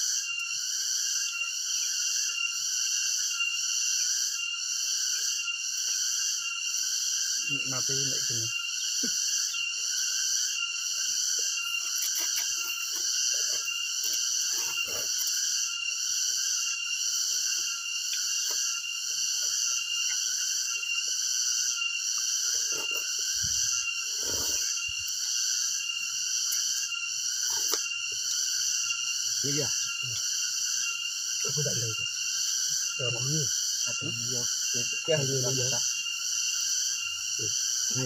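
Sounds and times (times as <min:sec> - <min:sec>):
insect chirring chorus: 0:00.0 - 0:38.0.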